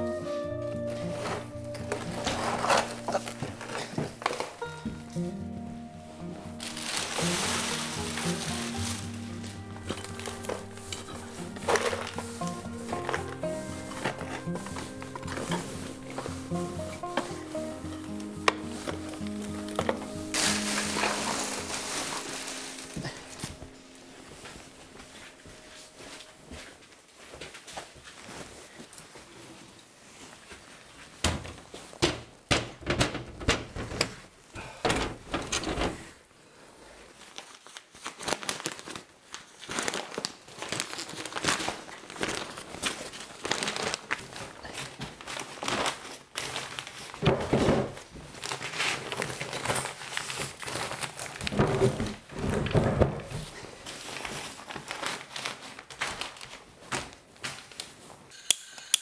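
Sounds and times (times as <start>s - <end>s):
plastic tablecloth crinkling: 0.9s - 5.2s, 6.1s - 32.0s, 37.1s - 58.3s
sharp knocks and clatter: 31.3s - 34.2s.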